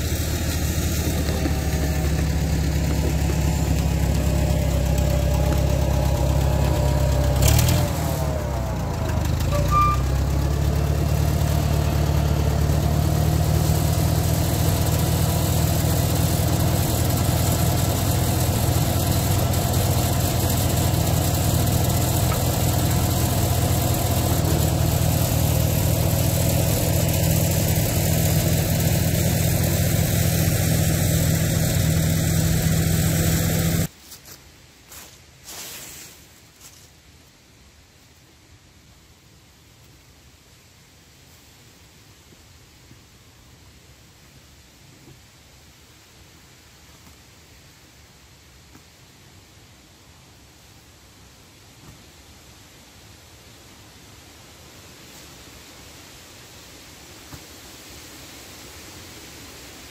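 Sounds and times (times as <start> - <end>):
tractor engine running: 0.0 - 33.9.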